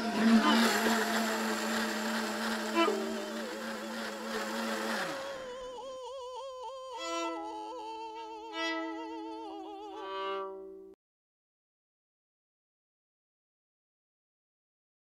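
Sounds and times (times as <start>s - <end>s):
operatic singing with vibrato: 0.0s - 10.5s.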